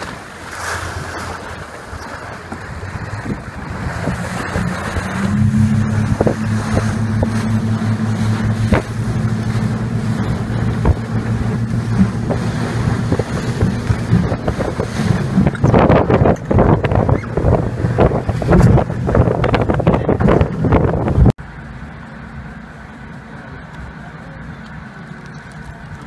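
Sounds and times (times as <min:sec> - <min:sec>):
outboard motor drone: 0:00.0 - 0:26.0
wind buffeting microphone: 0:01.1 - 0:21.4
rapid knocks and rushing: 0:10.4 - 0:21.3.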